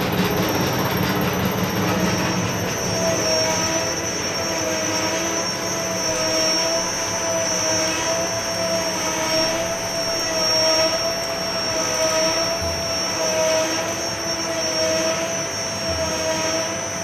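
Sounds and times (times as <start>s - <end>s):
mill machinery drone: 0.0s - 17.0s.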